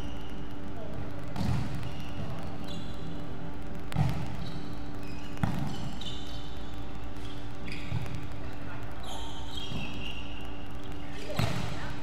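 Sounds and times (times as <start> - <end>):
steady low hum: 0.0 - 12.0
volleyball struck by hands: 1.3 - 1.8, 3.9 - 4.4, 11.3 - 11.8
sneakers squeaking on wooden floor: 4.1 - 8.2, 9.0 - 10.6.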